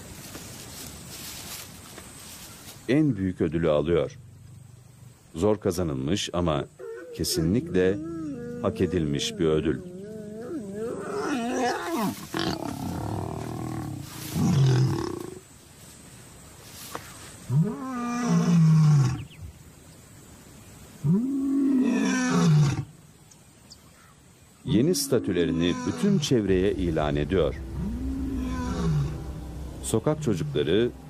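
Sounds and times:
lion growling: 0:06.7 - 0:15.4, 0:25.0 - 0:31.0
lion roaring: 0:06.8 - 0:15.4, 0:25.0 - 0:31.0.

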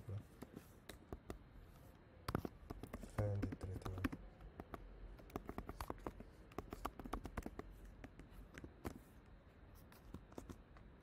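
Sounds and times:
typing on keyboard: 0:02.3 - 0:09.0, 0:10.0 - 0:10.6.

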